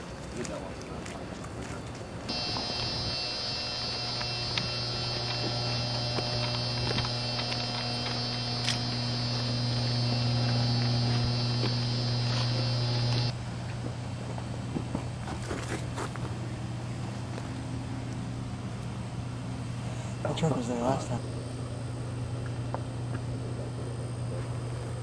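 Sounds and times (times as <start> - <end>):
outdoor noise: 0.0 - 25.0
transformer electrical hum: 2.3 - 14.7.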